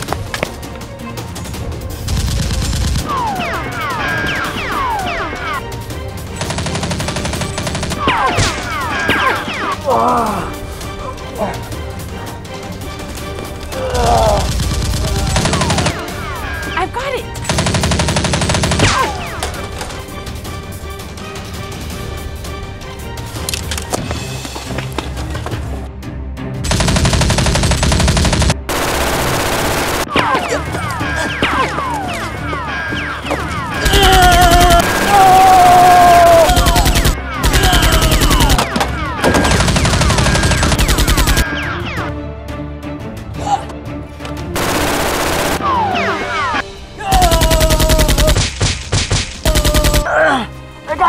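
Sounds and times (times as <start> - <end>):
scattered gunshots: 14.4 - 16.6, 17.5 - 19.3, 26.7 - 30.6, 33.8 - 41.5, 44.6 - 50.1
machine-gun bursts: 26.7 - 30.1, 36.4 - 38.6, 39.4 - 41.4, 44.6 - 45.6, 47.3 - 48.5, 49.6 - 50.0.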